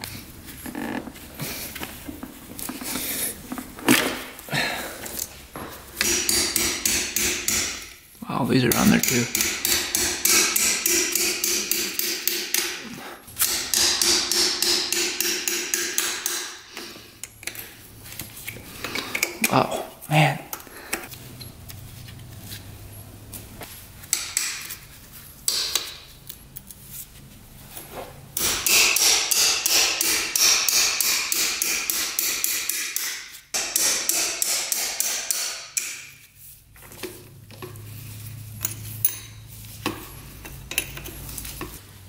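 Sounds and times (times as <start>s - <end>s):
hammer striking metal part: 6.0s - 7.9s, 8.7s - 12.8s, 13.4s - 16.7s, 28.4s - 36.2s.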